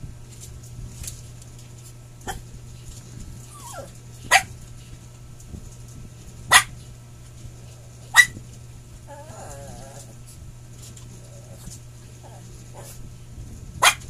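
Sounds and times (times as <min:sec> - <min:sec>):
dog whining: 0:03.4 - 0:04.0, 0:09.1 - 0:10.2
dog barking: 0:04.3 - 0:04.5, 0:06.5 - 0:06.7, 0:08.1 - 0:08.4, 0:13.8 - 0:14.0.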